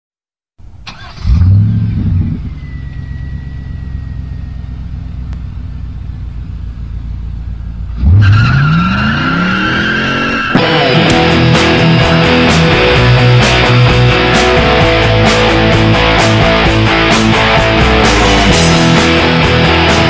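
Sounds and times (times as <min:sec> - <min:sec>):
car engine revving: 0:00.6 - 0:20.0
car engine starting and idling: 0:00.6 - 0:20.0
guitar-led rock music: 0:10.4 - 0:20.0.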